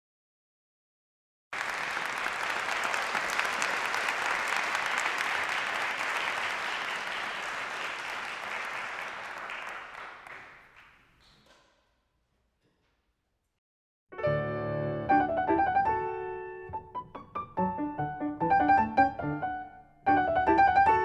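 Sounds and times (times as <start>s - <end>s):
audience applauding: 1.6s - 11.4s.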